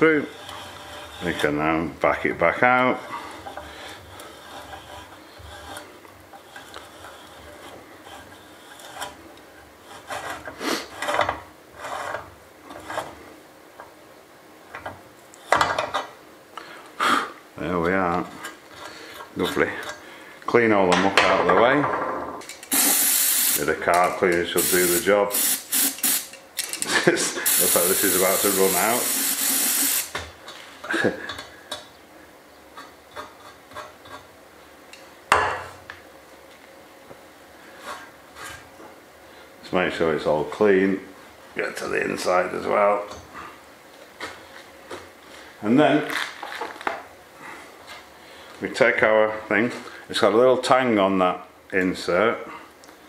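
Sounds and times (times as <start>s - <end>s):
metal on metal scraping: 0.0s - 1.8s, 3.0s - 9.2s
spray can clacking on workbench: 25.4s - 26.3s.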